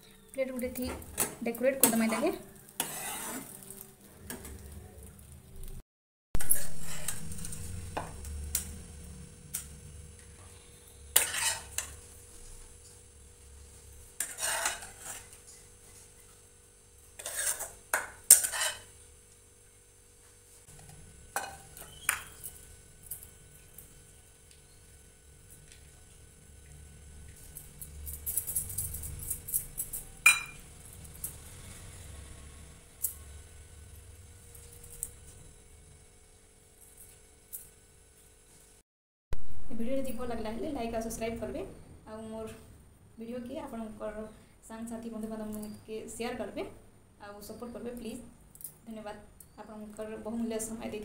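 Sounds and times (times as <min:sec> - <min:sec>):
steel spatula scraping a pan: 0:01.8 - 0:04.0, 0:06.4 - 0:07.7, 0:10.5 - 0:12.5, 0:14.1 - 0:16.2, 0:17.2 - 0:19.0
spatula stirring in a pan: 0:01.8 - 0:04.6, 0:06.4 - 0:08.1, 0:10.5 - 0:13.0, 0:13.7 - 0:16.4, 0:17.1 - 0:19.0.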